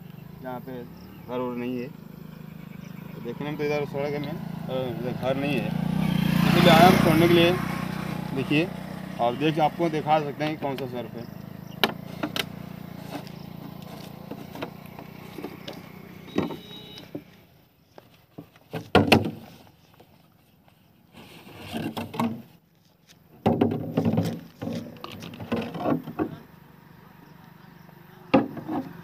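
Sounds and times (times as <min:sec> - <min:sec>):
engine hum: 0:00.0 - 0:29.0
plastic jar knocks and crackling: 0:23.4 - 0:26.4.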